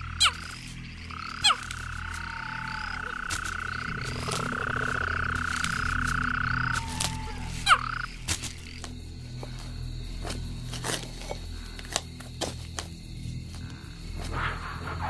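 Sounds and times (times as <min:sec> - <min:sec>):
low pulsing sound: 0:00.0 - 0:08.1
frogs trilling: 0:00.0 - 0:15.0.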